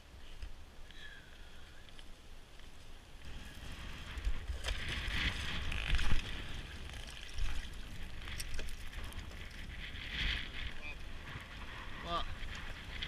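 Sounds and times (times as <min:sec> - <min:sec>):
water splashing and sloshing: 0:03.2 - 0:13.0.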